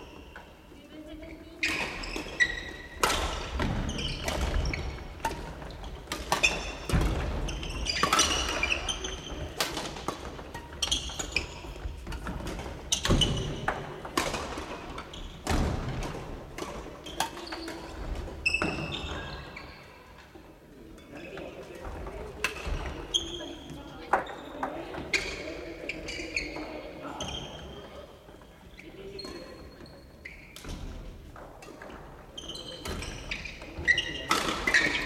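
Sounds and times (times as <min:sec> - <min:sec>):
shoe squeaks: 0:01.3 - 0:09.6, 0:10.7 - 0:11.9, 0:17.1 - 0:20.0, 0:22.8 - 0:27.9, 0:28.8 - 0:30.6, 0:32.4 - 0:35.0.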